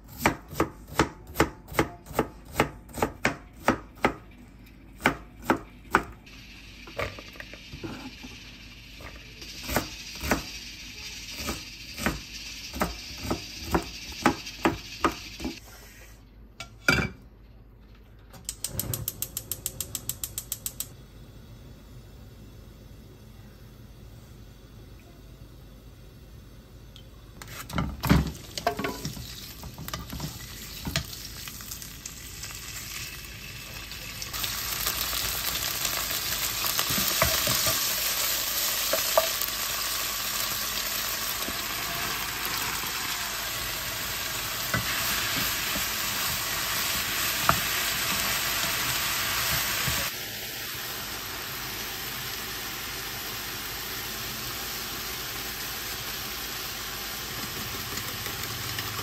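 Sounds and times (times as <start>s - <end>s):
meat sizzling in oil: 6.2s - 15.6s, 27.7s - 59.0s.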